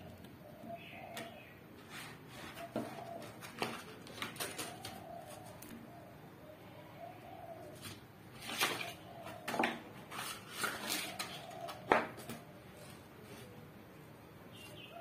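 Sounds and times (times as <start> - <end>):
pigeons cooing: 0.0 - 13.8, 14.7 - 15.0
paper rustling: 1.8 - 5.8, 7.8 - 13.6.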